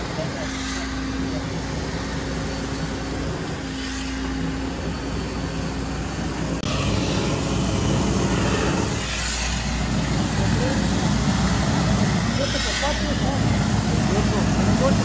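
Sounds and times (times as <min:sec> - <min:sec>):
hose spray hissing: 0:00.0 - 0:15.0
pump engine drone: 0:00.0 - 0:15.0.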